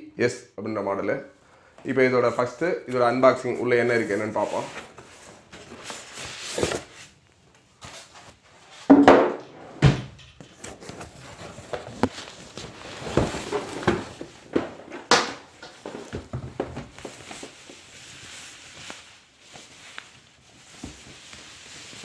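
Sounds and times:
cardboard flaps scraping: 0:10.4 - 0:22.0
plastic bag rustling: 0:10.5 - 0:22.0
cardboard thump: 0:13.0 - 0:15.4.

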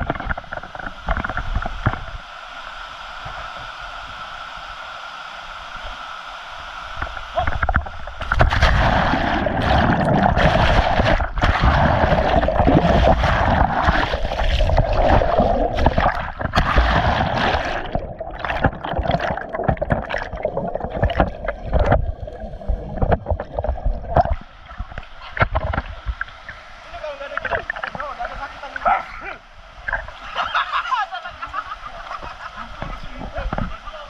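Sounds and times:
water splashing and gurgling: 0:00.0 - 0:02.6, 0:06.9 - 0:30.6.

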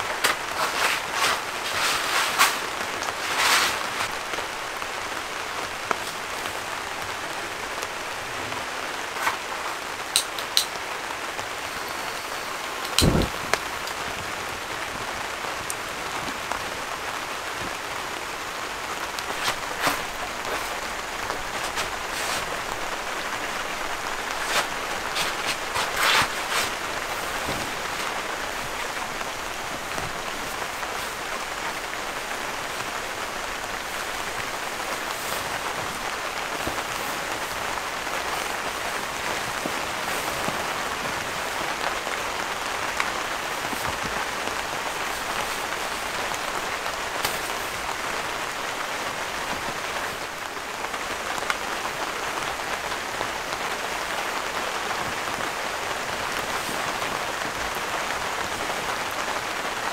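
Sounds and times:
rain on tent roof: 0:00.0 - 0:59.9.

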